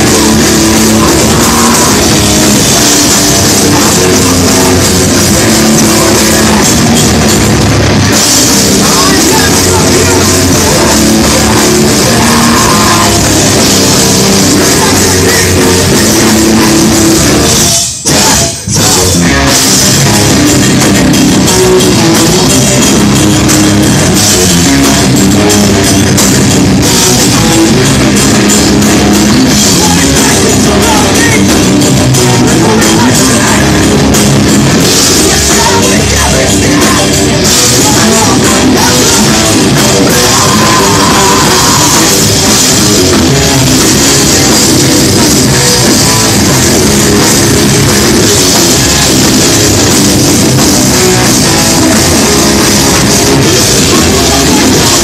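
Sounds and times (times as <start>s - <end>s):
drum kit playing: 0.0s - 55.0s
electric guitars: 0.0s - 55.0s.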